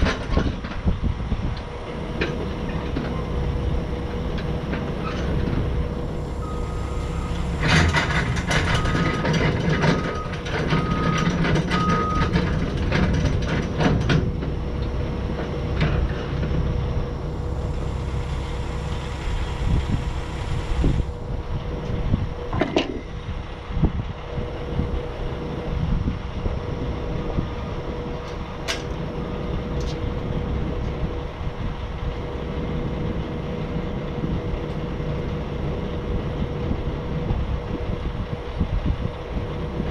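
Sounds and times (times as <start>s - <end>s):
heavy vehicle engine running: 0.0s - 39.9s
metallic rattling: 6.0s - 14.3s
short beeps: 6.2s - 9.3s.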